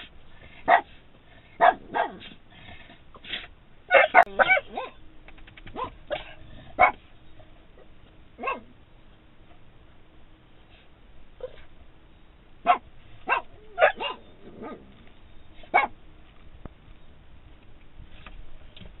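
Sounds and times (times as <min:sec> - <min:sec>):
dog barking: 0:00.7 - 0:00.9, 0:01.6 - 0:02.4, 0:03.9 - 0:05.0, 0:05.7 - 0:07.0, 0:08.4 - 0:08.7, 0:12.6 - 0:14.9, 0:15.7 - 0:16.0.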